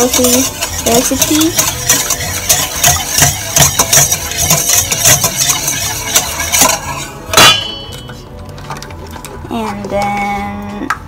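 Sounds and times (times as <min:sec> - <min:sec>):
whisk clattering in metal bowl: 0:00.0 - 0:08.2.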